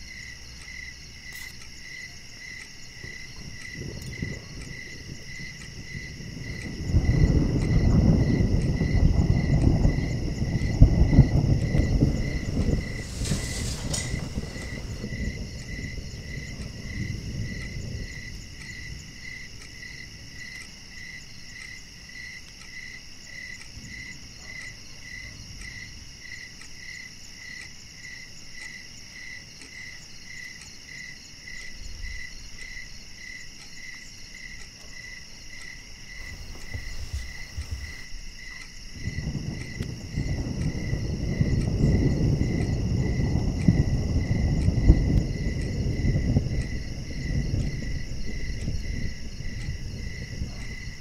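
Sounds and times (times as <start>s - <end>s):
crickets chirping: 0.0s - 51.0s
steady insect trill: 0.0s - 51.0s
low rumble: 3.4s - 18.6s, 36.1s - 51.0s.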